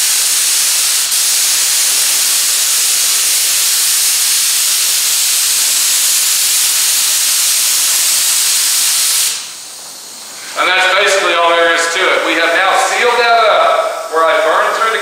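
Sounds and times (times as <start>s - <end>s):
spray gun air hissing: 0.0s - 15.0s.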